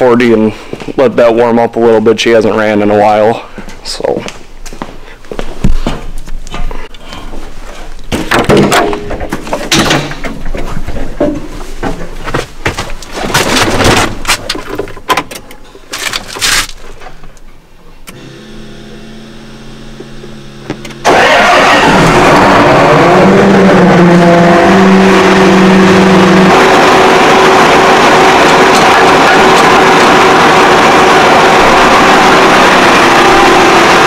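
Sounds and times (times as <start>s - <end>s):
tractor diesel engine running: 18.1s - 34.0s.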